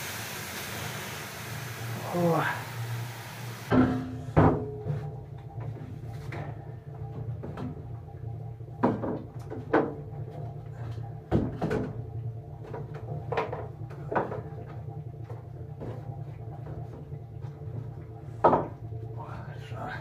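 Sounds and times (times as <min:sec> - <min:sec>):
steady low hum: 0:00.0 - 0:20.0
basins knocking on wooden benches: 0:08.7 - 0:10.4, 0:11.3 - 0:18.9.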